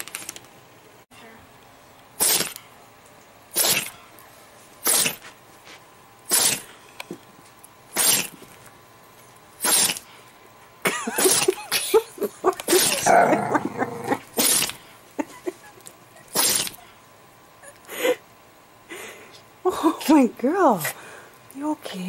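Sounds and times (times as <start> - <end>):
dog sneezing and snorting: 2.2 - 2.6, 3.5 - 4.0, 4.8 - 5.3, 6.3 - 6.7, 7.9 - 8.4, 9.6 - 10.1, 11.0 - 12.0, 12.7 - 13.3, 14.4 - 14.8, 16.3 - 16.9.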